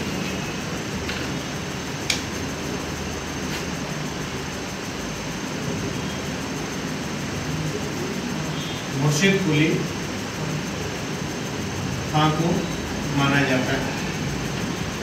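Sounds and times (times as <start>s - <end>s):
fan-like room hum and hiss: 0.0s - 15.0s.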